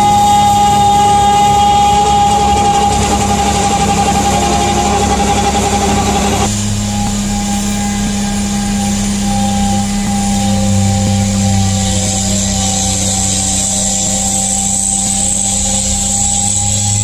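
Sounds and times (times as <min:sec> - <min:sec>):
snow rushing from blower: 0:00.0 - 0:07.5
high whine: 0:00.0 - 0:17.0
loader engine and snowblower drone: 0:00.0 - 0:17.0.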